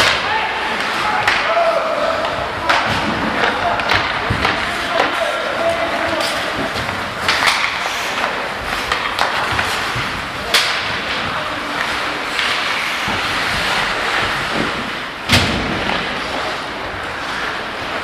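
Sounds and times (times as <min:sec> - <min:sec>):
skates scraping ice: 0:00.0 - 0:18.0
stick and puck knocks: 0:06.2 - 0:11.2
loud thump: 0:15.3 - 0:16.1.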